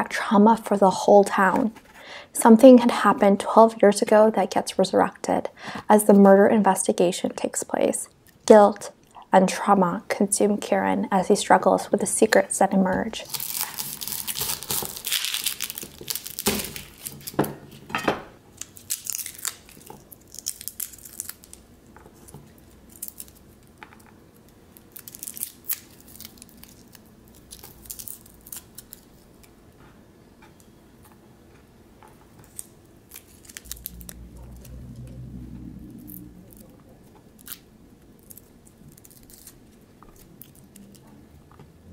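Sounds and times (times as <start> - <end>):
garlic skins crackling: 12.5 - 17.7, 18.5 - 29.5, 32.3 - 41.2
low hum: 33.1 - 41.9.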